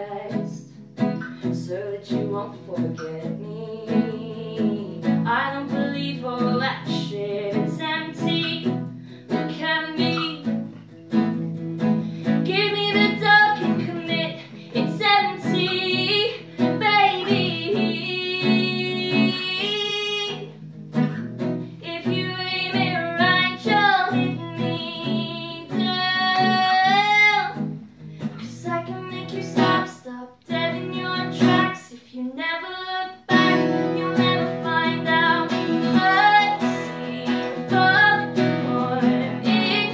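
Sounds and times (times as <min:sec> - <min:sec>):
woman singing: 0:00.0 - 0:11.4, 0:12.2 - 0:20.6, 0:21.7 - 0:39.9
acoustic guitar: 0:00.0 - 0:39.9.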